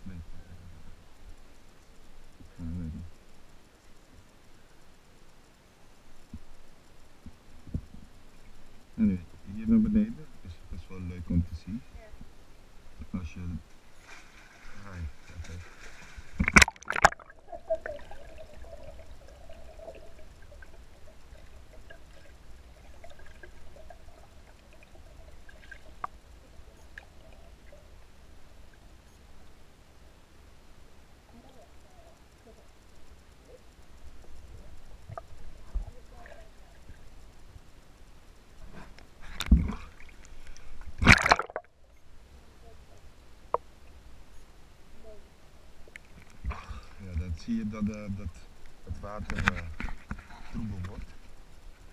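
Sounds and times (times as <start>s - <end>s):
water splashing: 14.0s - 28.9s, 39.4s - 41.8s
muffled underwater rumble: 14.6s - 30.1s, 31.2s - 43.7s, 44.9s - 51.9s
small clicks and ticks: 31.3s - 40.9s, 42.9s - 44.5s, 45.8s - 46.5s, 47.1s - 51.9s.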